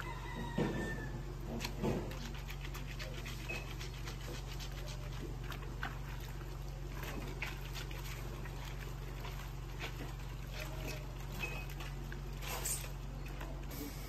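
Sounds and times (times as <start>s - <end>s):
clothes scrubbed in water: 0.0s - 14.0s.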